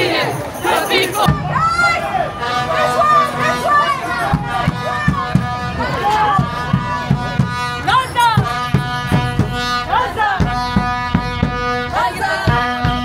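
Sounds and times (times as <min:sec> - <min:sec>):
regular drumbeat: 0:00.9 - 0:01.7, 0:04.3 - 0:13.0.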